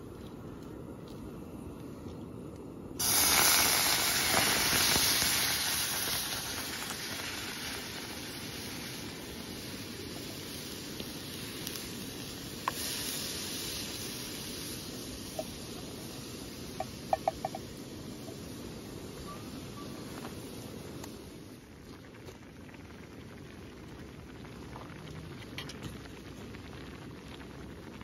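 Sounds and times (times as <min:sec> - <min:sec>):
food sizzling in hot pan: 0:03.0 - 0:21.6.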